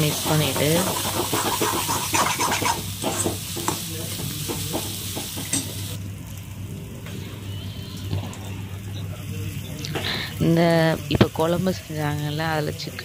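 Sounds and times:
food sizzling in a pan: 0:00.0 - 0:13.0
ladle scraping a pan: 0:00.8 - 0:03.3.

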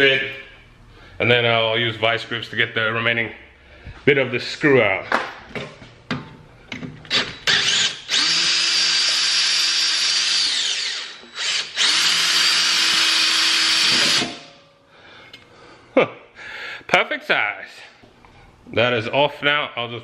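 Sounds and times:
cordless drill boring: 0:07.1 - 0:14.5.

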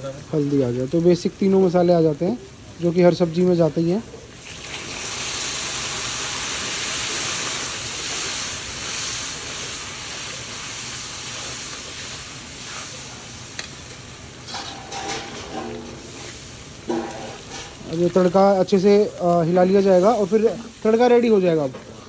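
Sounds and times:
oil hissing and sizzling: 0:00.0 - 0:22.0.

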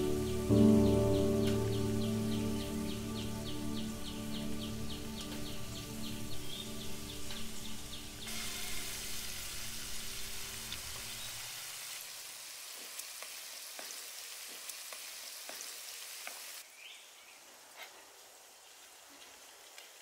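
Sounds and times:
prawns sizzling in hot oil: 0:08.2 - 0:16.6.

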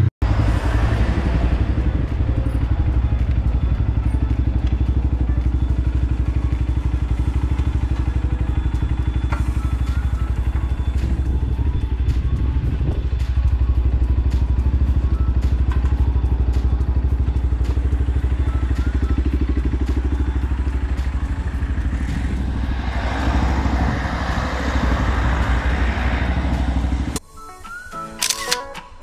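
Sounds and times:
motorcycle engine running: 0:00.0 - 0:27.2
rushing noise: 0:19.5 - 0:27.3.

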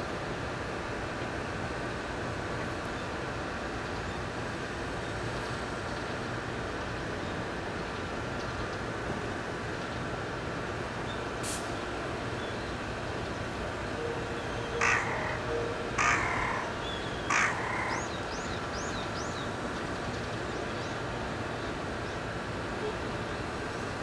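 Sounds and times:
loud bird calls: 0:14.0 - 0:19.3.

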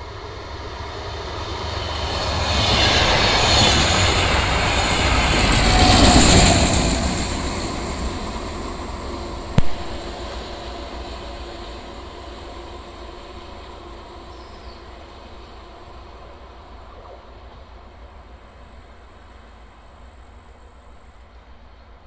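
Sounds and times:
train engine and wheels: 0:00.0 - 0:22.0
sharp knock: 0:09.6 - 0:10.0.

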